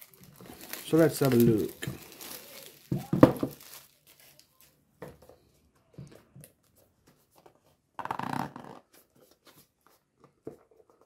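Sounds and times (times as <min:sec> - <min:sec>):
plastic shrink wrap crinkling: 0:00.0 - 0:05.2.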